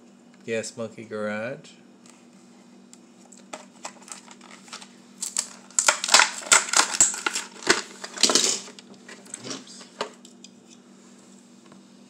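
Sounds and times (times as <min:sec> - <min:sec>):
plastic packaging crackling: 0:03.3 - 0:10.2.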